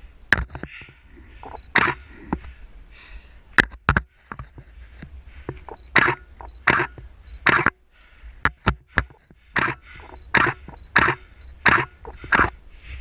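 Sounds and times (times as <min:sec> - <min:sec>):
heavy breathing: 0:00.6 - 0:03.6, 0:04.6 - 0:06.4, 0:07.8 - 0:13.0
sharp knocks: 0:05.5 - 0:07.8, 0:08.4 - 0:12.5.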